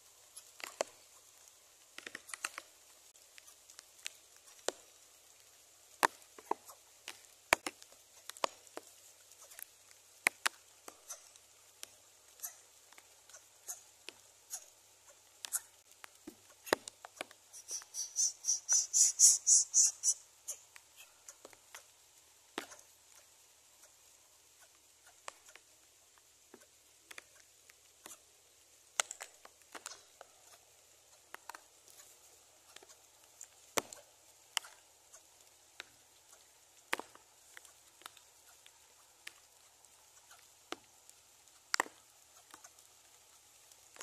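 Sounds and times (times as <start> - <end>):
rustles of dry grass and twigs: 0.0 - 44.0
high squeaky bird chirps: 17.5 - 20.6.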